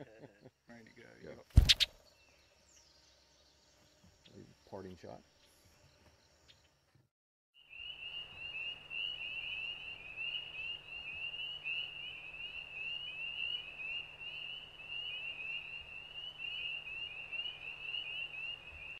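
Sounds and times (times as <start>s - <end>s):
frogs peeping chorus: 1.6s - 2.0s, 7.6s - 18.9s.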